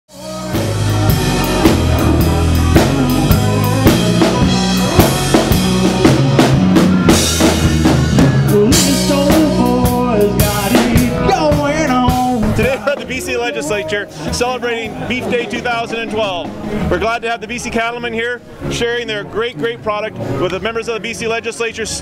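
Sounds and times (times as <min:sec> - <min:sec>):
drum kit beat: 0:00.1 - 0:16.9
band playing up-tempo music: 0:00.1 - 0:22.0.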